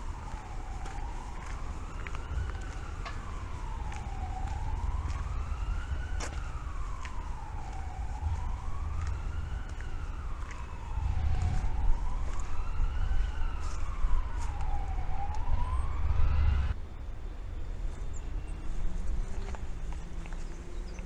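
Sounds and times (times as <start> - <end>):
siren wailing: 0.0 - 16.8
steady low rumble: 0.0 - 21.0.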